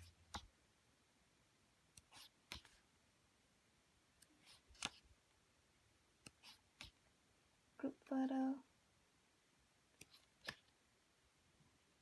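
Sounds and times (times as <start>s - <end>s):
book pages turning: 2.0s - 2.8s, 4.3s - 5.1s.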